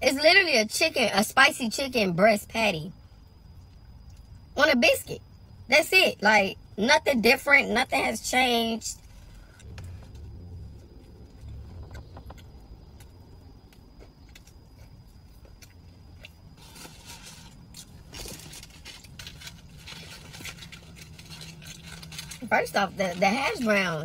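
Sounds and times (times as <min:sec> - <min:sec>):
person chewing: 0:09.4 - 0:22.4
car cabin hum: 0:09.6 - 0:14.4
food packaging crinkling: 0:14.0 - 0:24.0.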